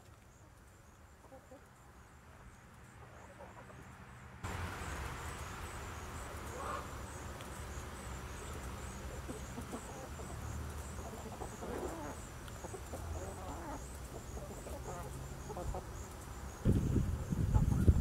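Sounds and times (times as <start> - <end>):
chickens clucking: 1.2 - 1.8, 3.0 - 3.9, 6.2 - 18.0.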